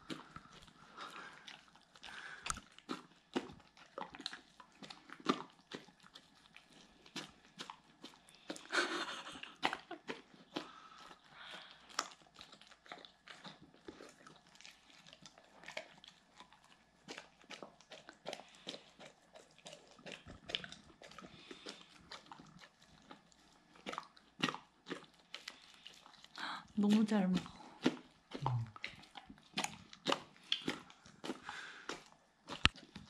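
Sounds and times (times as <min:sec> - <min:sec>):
dog chewing and smacking: 0:00.0 - 0:33.0.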